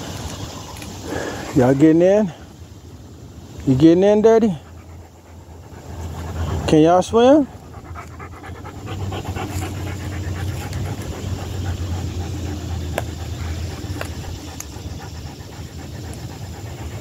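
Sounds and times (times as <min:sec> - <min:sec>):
dog panting fast: 0:04.3 - 0:17.0.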